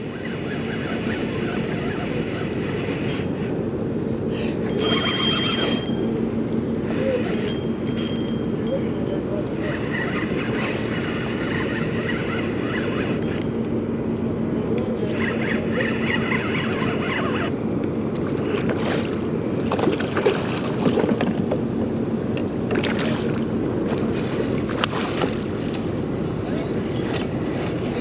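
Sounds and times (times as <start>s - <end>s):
water lapping against kayak: 18.1s - 28.0s.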